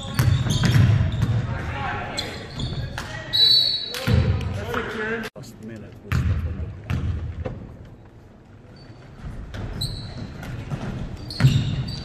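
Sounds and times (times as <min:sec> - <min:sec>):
basketball bouncing on gym floor: 0:00.0 - 0:01.8, 0:06.1 - 0:07.7, 0:09.2 - 0:12.0
sneaker squeaks: 0:00.0 - 0:04.3, 0:08.6 - 0:12.0.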